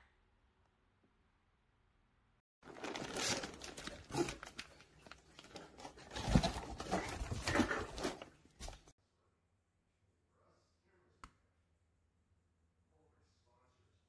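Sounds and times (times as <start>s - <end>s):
plastic packaging crinkling: 2.6s - 8.9s.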